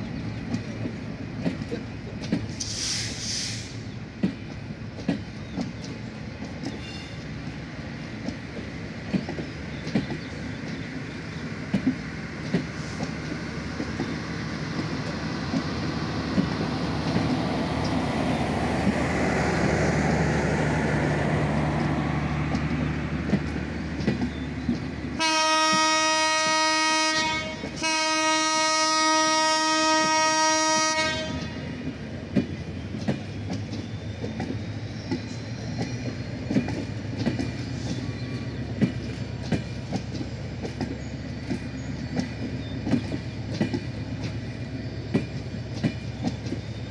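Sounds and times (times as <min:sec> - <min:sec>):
train wheels clicking over rail joints: 0:00.0 - 0:46.9
train horn blasts: 0:25.2 - 0:31.7.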